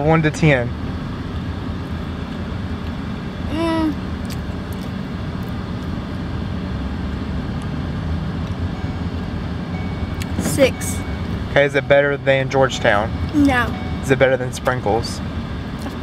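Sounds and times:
car idling with air conditioning: 8.7s - 16.0s.

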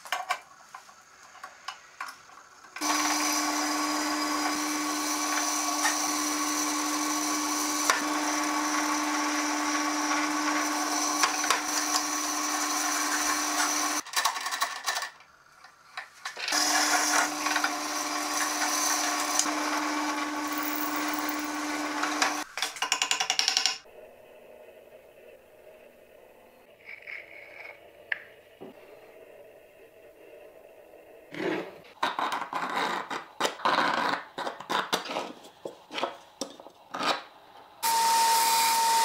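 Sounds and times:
drill press motor boring: 2.8s - 14.0s, 16.5s - 22.5s.

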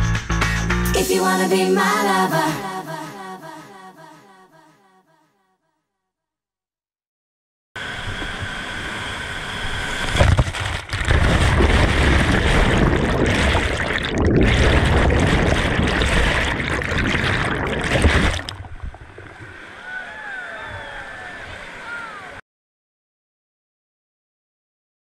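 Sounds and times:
churning whitewater: 9.9s - 22.4s.

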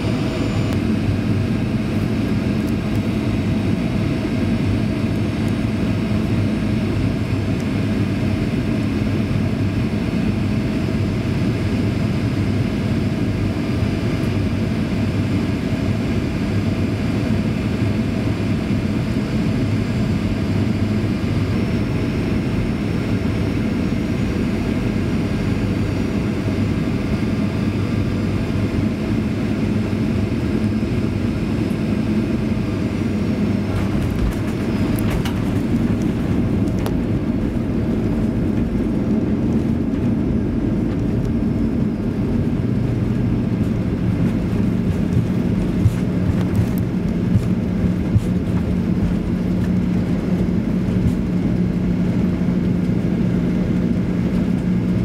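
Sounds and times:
jet engines droning: 0.0s - 55.0s
airflow rushing past fuselage: 42.4s - 51.7s.

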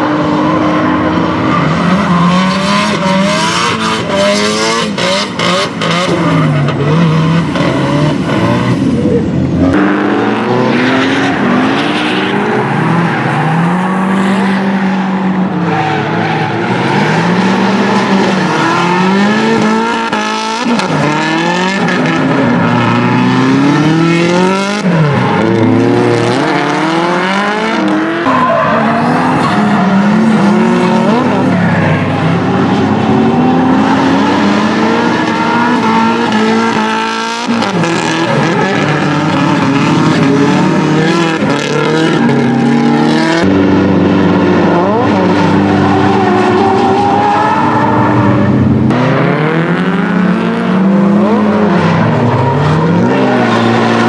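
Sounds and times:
car engines revving: 0.0s - 54.0s
tyres squealing on tarmac: 28.2s - 32.6s, 45.1s - 48.5s.

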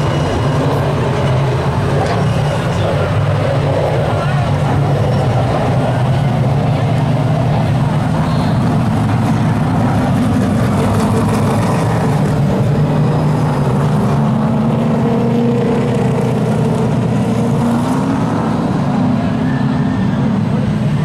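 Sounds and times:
race car engines running: 0.0s - 21.0s.

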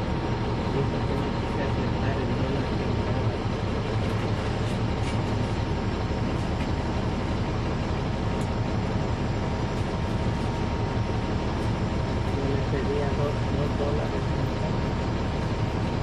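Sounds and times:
bus diesel engine rumble: 0.0s - 16.0s.

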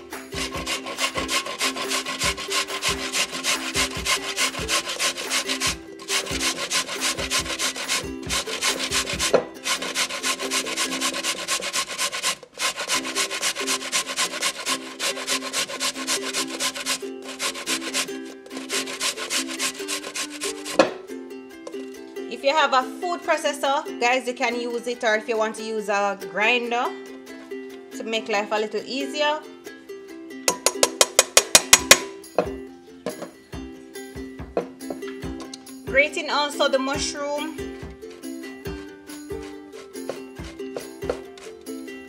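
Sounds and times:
soft background music: 0.0s - 12.0s, 12.6s - 42.0s
carrot grating on metal grater: 0.0s - 21.0s, 38.0s - 41.8s.

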